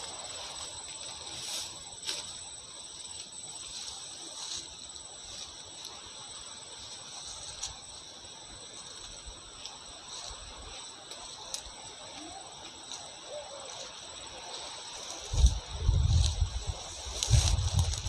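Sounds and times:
brushing through grass: 0.0 - 18.0
shrill insect chorus: 0.0 - 18.0
footsteps crunching: 6.8 - 18.0.

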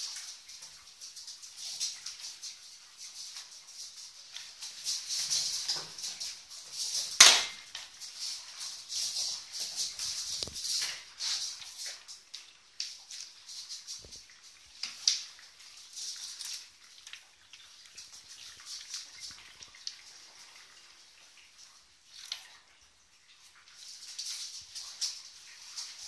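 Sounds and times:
mop swishing across floor: 0.0 - 12.3.

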